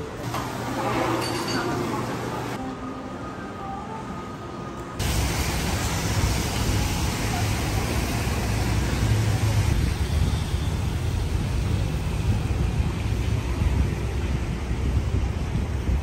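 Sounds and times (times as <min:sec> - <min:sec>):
tyres hissing on wet road: 0:05.0 - 0:15.6
low traffic rumble: 0:05.0 - 0:16.0.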